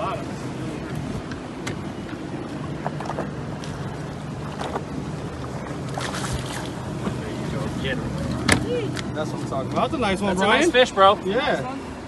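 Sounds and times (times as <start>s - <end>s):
water around boat: 0.0s - 12.0s
splashes and knocks: 5.9s - 6.8s.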